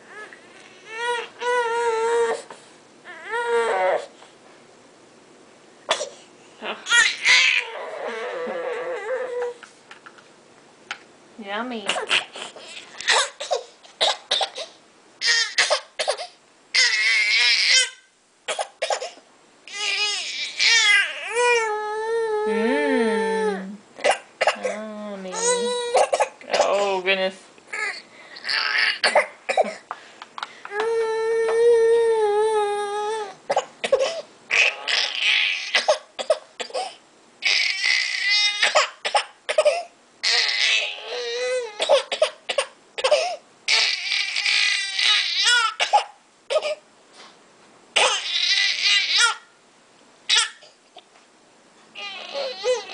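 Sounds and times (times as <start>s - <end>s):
infant crying: 0.1s - 4.1s, 6.6s - 9.6s, 14.5s - 18.1s, 19.7s - 23.7s, 24.6s - 26.1s, 27.7s - 29.1s, 30.7s - 33.4s, 34.0s - 36.1s, 36.9s - 39.0s, 39.8s - 42.1s, 43.2s - 45.8s, 48.0s - 49.5s, 52.0s - 52.9s.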